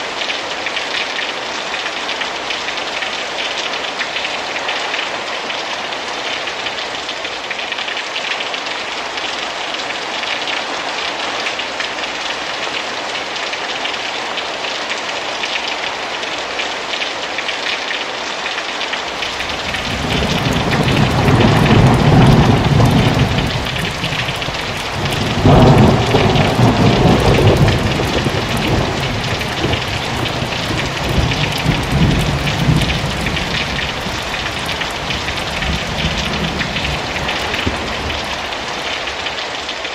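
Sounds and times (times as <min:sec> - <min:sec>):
heavy rain: 0:00.0 - 0:39.9
water dripping off roof eaves: 0:00.0 - 0:39.9
thunder rumbling: 0:19.2 - 0:39.3.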